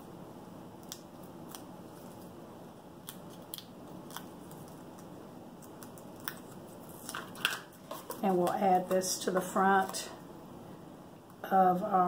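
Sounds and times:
paper clicks and crinkles: 0:03.1 - 0:09.1.

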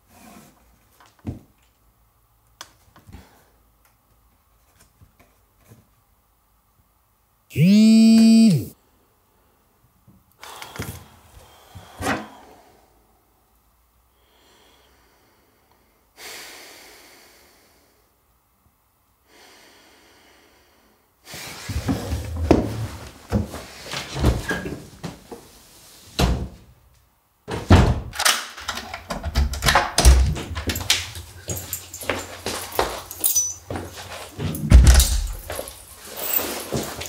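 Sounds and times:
door opening and shutting: 0:27.5 - 0:30.8, 0:34.5 - 0:35.5.

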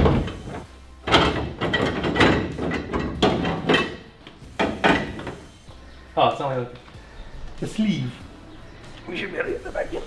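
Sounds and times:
metallic clunks and scrapes: 0:00.0 - 0:05.6.

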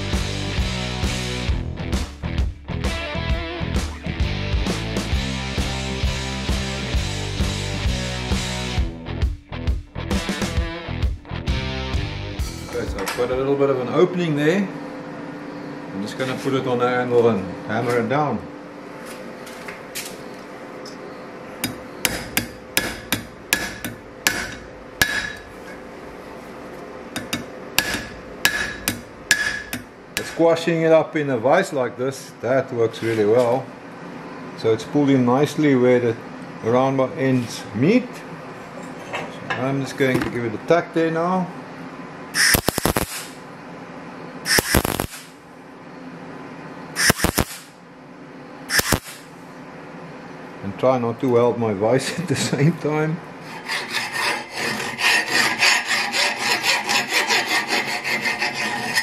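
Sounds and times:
hammer striking steel ring: 0:21.6 - 0:25.4, 0:27.2 - 0:30.4
welding arc crackling: 0:42.4 - 0:43.4, 0:44.5 - 0:45.4, 0:47.0 - 0:47.8, 0:48.7 - 0:49.3.

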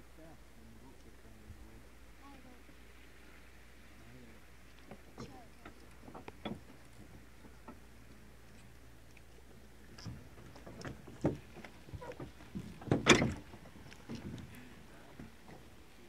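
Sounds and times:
knocks and thumps on wooden dock: 0:10.0 - 0:14.5.

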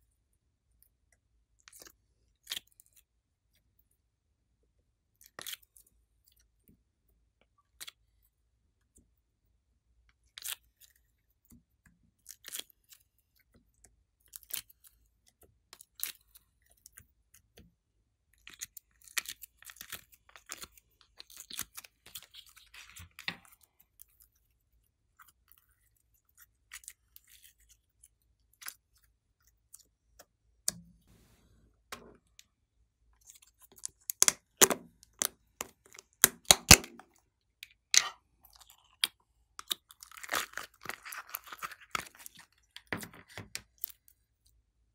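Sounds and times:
sharp slime clicks and pops: 0:36.2 - 0:37.0.

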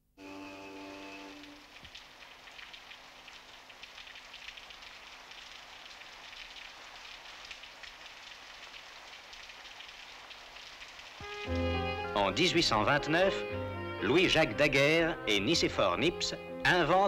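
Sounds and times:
faint crackling hiss: 0:00.2 - 0:13.4.

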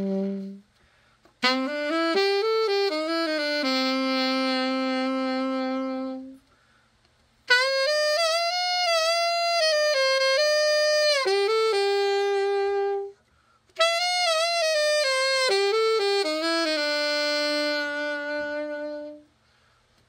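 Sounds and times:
solo alto saxophone: 0:00.0 - 0:19.8
player breathing: 0:00.8 - 0:01.3, 0:19.4 - 0:20.0.

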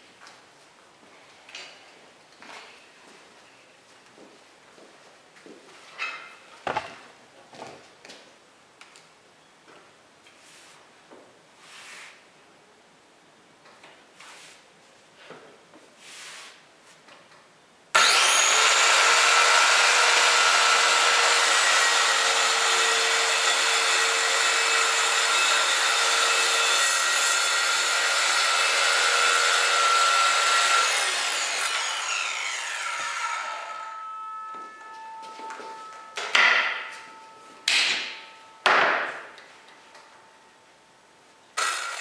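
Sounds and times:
saw blade winding down: 0:18.0 - 0:34.2, 0:41.6 - 0:42.0
circular saw cutting panel: 0:18.0 - 0:37.3, 0:41.6 - 0:42.0.

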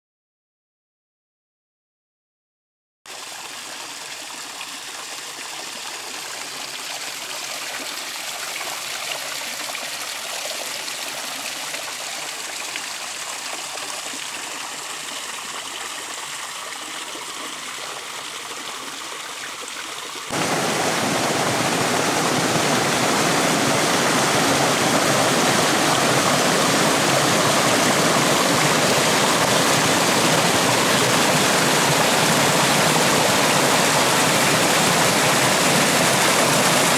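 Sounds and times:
water rushing over rocks: 0:20.3 - 0:36.9.

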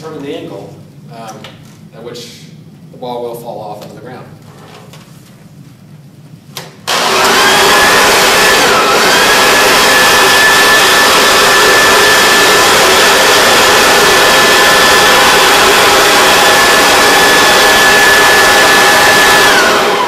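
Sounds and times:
leaf blower running: 0:06.9 - 0:20.0.

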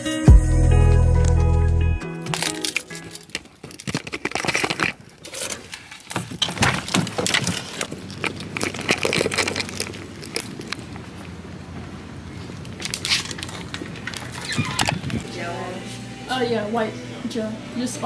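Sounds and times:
clothing and bag rustling: 0:02.4 - 0:16.1.

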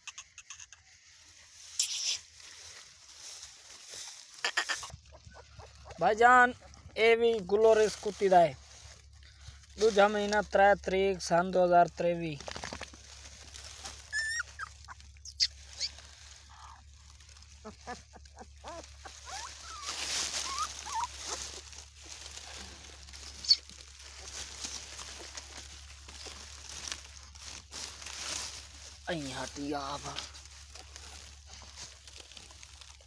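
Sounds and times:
puppies squeaking and whimpering: 0:00.0 - 0:00.9, 0:04.4 - 0:06.8, 0:13.6 - 0:24.4
rustling of dry straw: 0:00.0 - 0:33.0.

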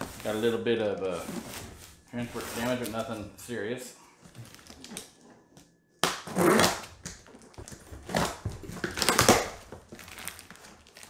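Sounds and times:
cardboard box crackling and scraping: 0:00.0 - 0:03.2.

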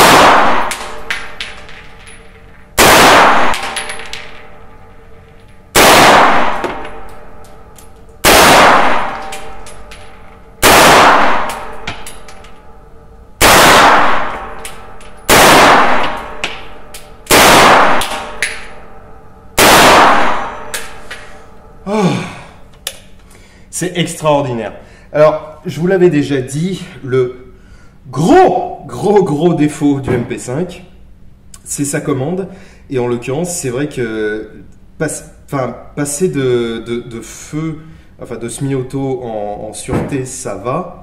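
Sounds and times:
gunshots with ringing decay: 0:00.0 - 0:02.0, 0:02.8 - 0:04.7, 0:05.7 - 0:12.8, 0:13.4 - 0:21.0.

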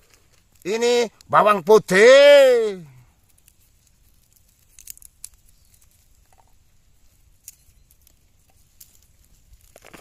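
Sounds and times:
garlic skin crackling: 0:03.2 - 0:06.6.

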